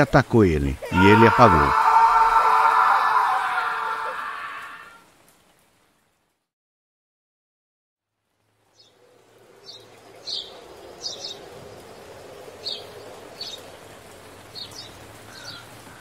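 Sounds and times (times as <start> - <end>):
steady background ambience: 8.9 - 16.0.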